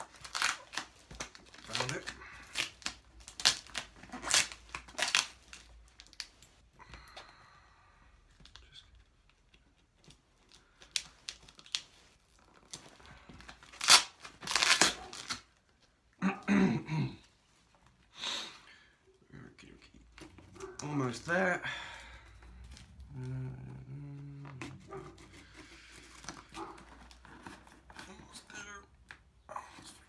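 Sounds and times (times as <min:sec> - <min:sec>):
plastic wrapping ripping and crinkling: 0:00.0 - 0:06.6, 0:10.4 - 0:15.6.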